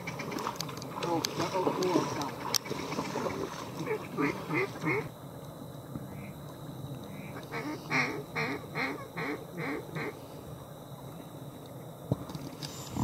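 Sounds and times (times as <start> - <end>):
duck quacking: 2.6 - 5.1, 7.5 - 10.1.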